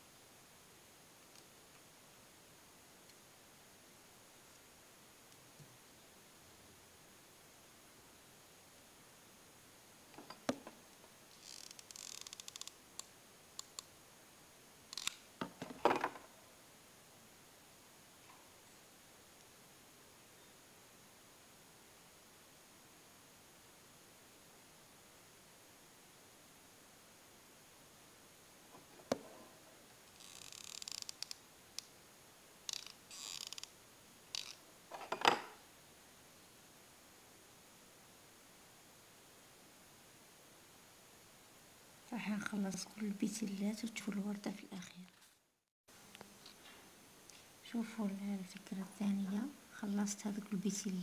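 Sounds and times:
small clicks: 11.4 - 13.9, 14.9 - 15.3, 30.1 - 31.9, 32.7 - 33.7, 34.3 - 34.6.

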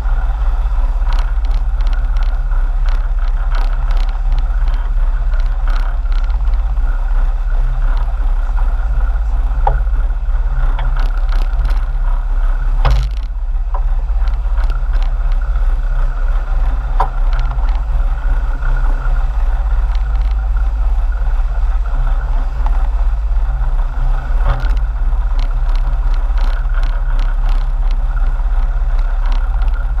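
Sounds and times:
boat engines rumbling: 0.0 - 30.0
sharp knocks: 12.8 - 13.9.

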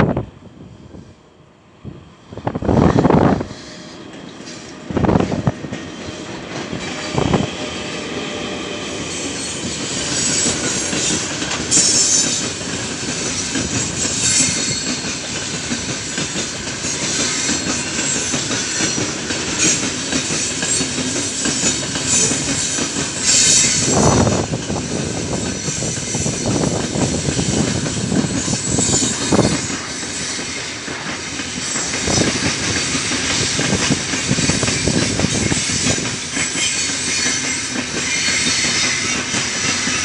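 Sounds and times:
train wheels rumbling and clattering: 2.0 - 40.0
wheel squeal: 34.7 - 40.0.

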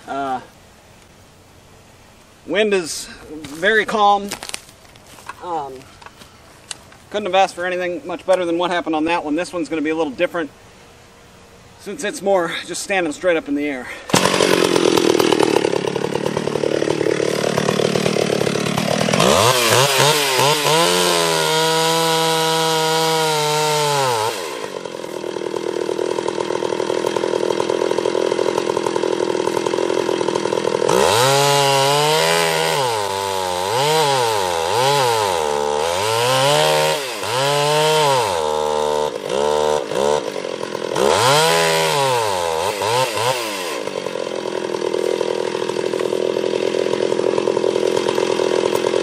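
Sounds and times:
chainsaw cutting wood: 14.1 - 49.0.

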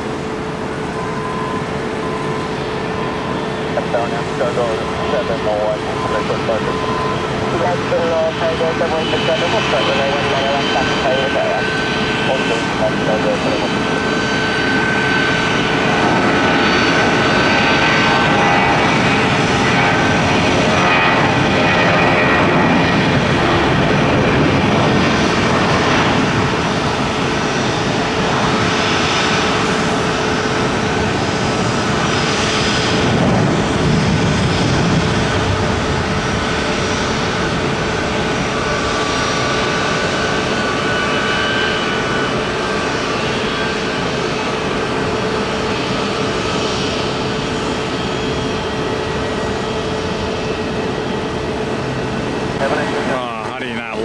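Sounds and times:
jet engines at takeoff: 0.0 - 54.0.

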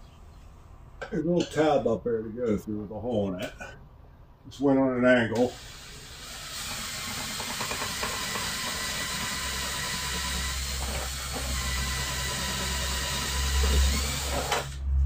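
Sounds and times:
cordless driver running: 5.6 - 14.8
deep hum: 14.7 - 15.0.

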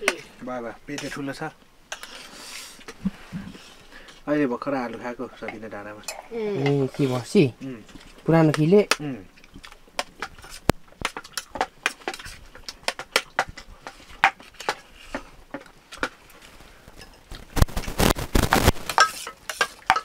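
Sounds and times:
metal spoon clinking on steel plate: 19.0 - 20.0.

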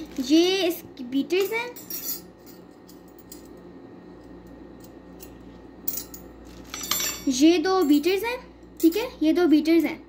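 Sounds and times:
metal mixer beaters clinking: 5.2 - 8.2.

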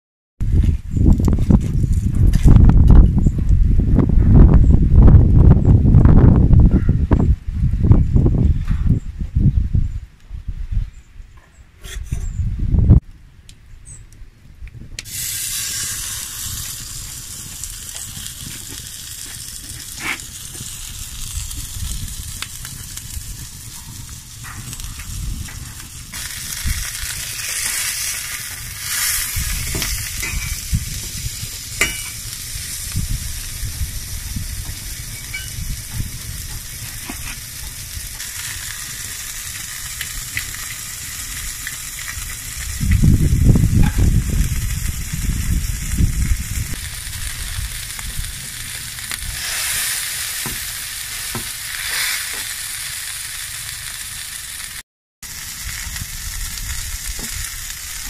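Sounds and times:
burger patty sizzling: 15.0 - 58.0.

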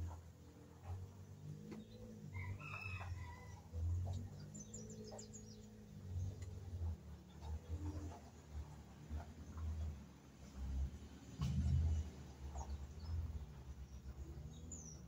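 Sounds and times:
rooster crowing: 2.3 - 3.8.

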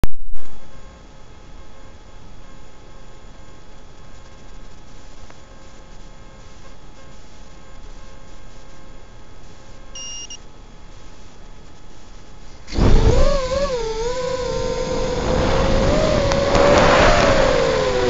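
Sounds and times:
faint beep: 10.0 - 10.4
drone motors whining: 12.7 - 18.0.

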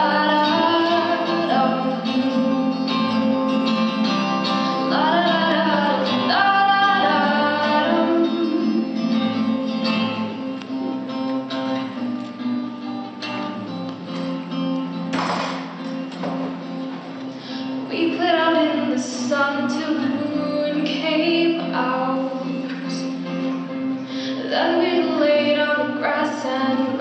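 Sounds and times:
woman singing: 0.0 - 10.4, 17.6 - 23.4, 24.2 - 27.0
acoustic guitar strumming: 0.0 - 27.0.

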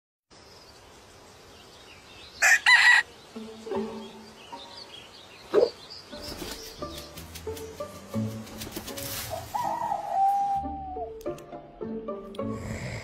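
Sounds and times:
rooster crowing: 2.4 - 3.1.

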